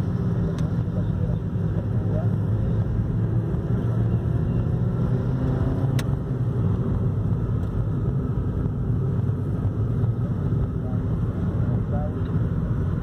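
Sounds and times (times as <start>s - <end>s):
car engine drone in cabin: 0.0s - 13.0s
road noise: 0.0s - 13.0s.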